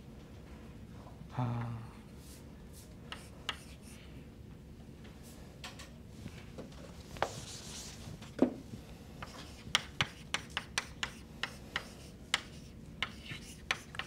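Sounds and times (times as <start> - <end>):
sharp chalk taps: 3.1 - 3.8, 9.2 - 14.0
chalk scraping on blackboard: 9.2 - 14.0.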